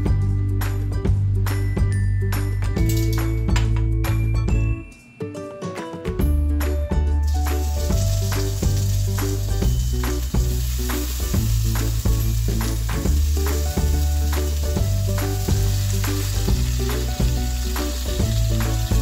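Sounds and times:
music with deep bass line: 0.0 - 4.8, 6.2 - 19.0
shrimp sizzling in a pan: 7.2 - 19.0.

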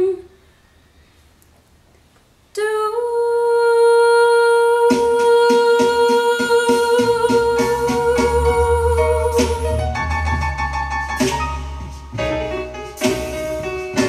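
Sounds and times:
woman singing high note: 2.6 - 9.9
backing track with beat: 4.9 - 14.0
bass line: 6.6 - 14.0.

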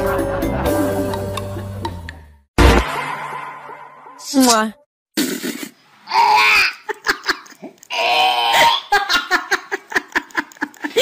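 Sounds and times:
person laughing: 6.7 - 7.9, 8.6 - 11.0.

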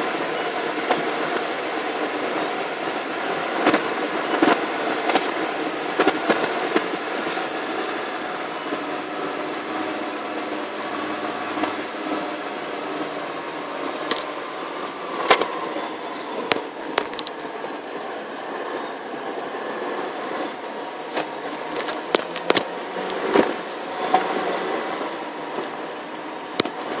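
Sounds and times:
car road and engine noise: 0.0 - 27.0.

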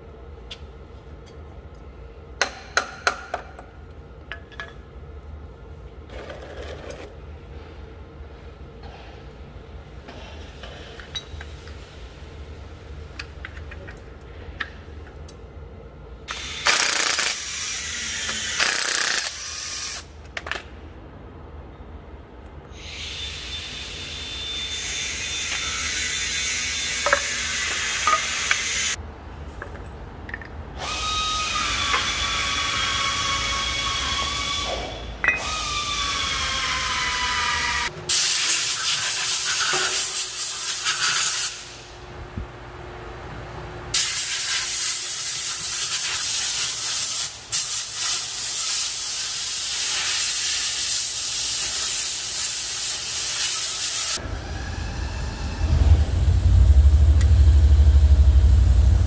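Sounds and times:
steady low hum: 54.2 - 59.0.

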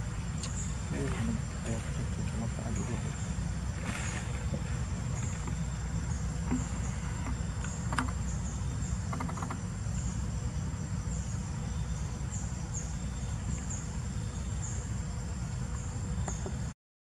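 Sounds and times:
insects chirping: 0.0 - 16.8
steady low rumble: 0.0 - 16.8
faint clicks: 9.1 - 9.6.

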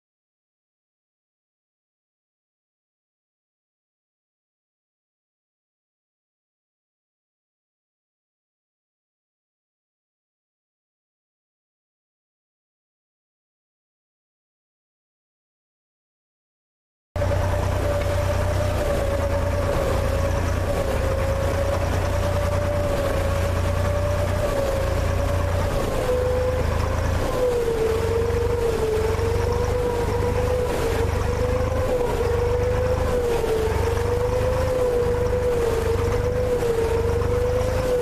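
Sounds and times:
boat engine droning: 17.2 - 38.0.

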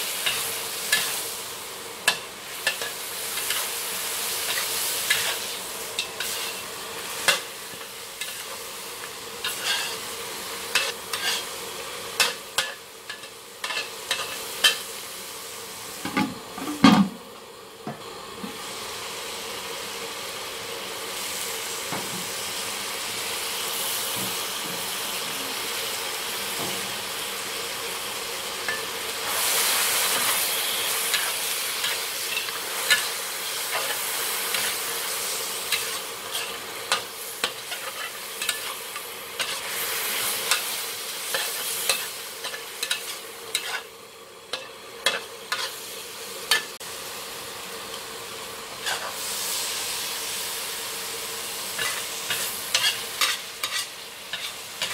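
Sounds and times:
food sizzling in a wok: 0.0 - 54.9
metal spatula scraping wok: 4.4 - 8.6, 9.4 - 11.6, 12.2 - 14.9, 28.7 - 43.9, 44.5 - 45.9, 48.8 - 49.6, 51.7 - 54.9.

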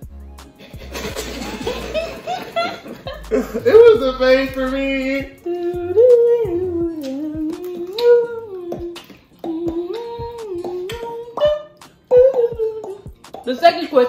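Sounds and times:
man humming a slow tune: 5.2 - 13.2.

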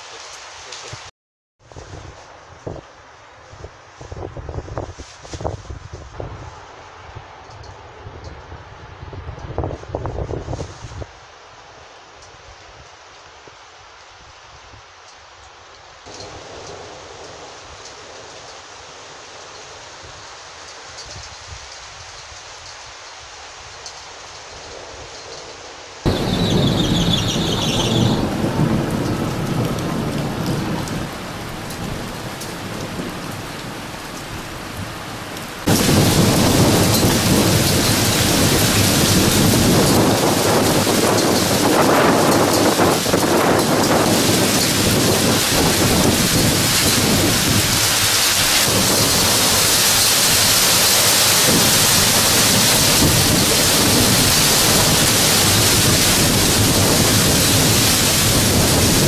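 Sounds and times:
heavy rain: 0.0 - 59.0
rolling thunder: 26.1 - 59.0.

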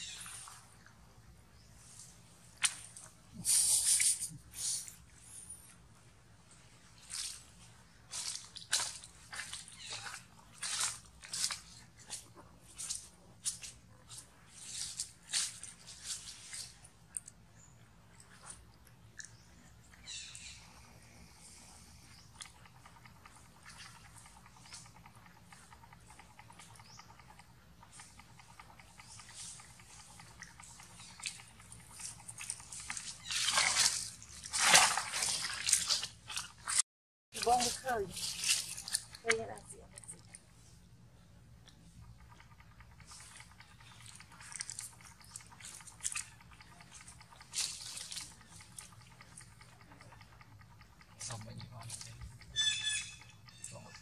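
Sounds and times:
dry leaves crunching: 7.0 - 7.5, 8.1 - 16.8, 37.4 - 39.6.

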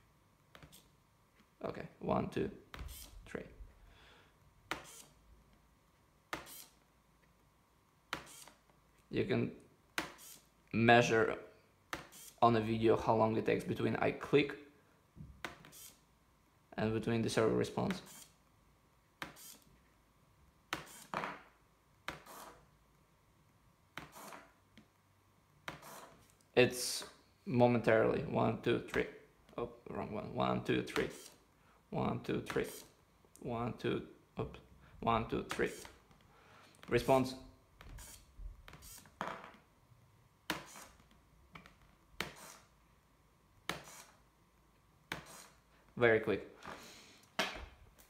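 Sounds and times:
small servo whirring: 4.8 - 5.2, 8.2 - 8.6, 12.1 - 12.4, 15.7 - 16.0, 18.1 - 18.4, 19.4 - 19.7, 20.8 - 21.2, 37.9 - 39.1.

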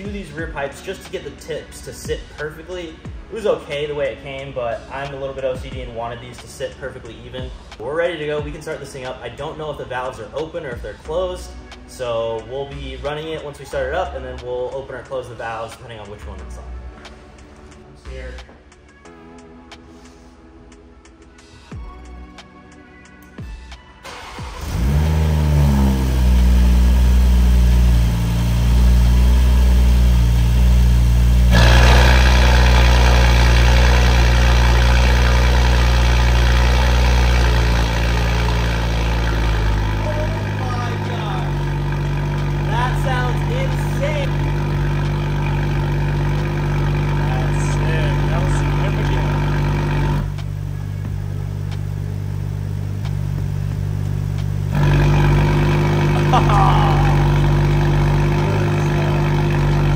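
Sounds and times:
car engine starting and idling: 24.0 - 59.9.

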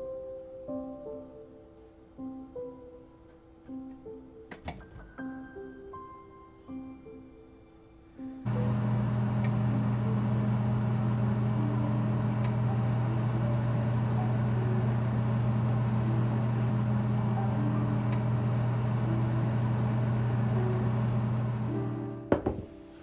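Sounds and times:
oven fan humming: 8.5 - 22.3.

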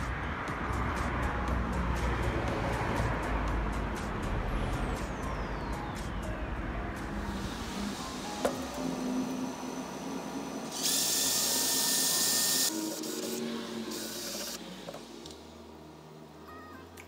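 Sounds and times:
drill grinding through metal: 7.6 - 14.7.

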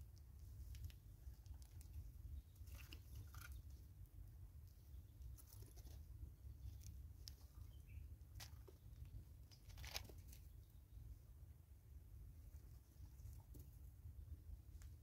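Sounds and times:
squirrels cracking seeds: 0.1 - 3.8, 8.3 - 10.6.

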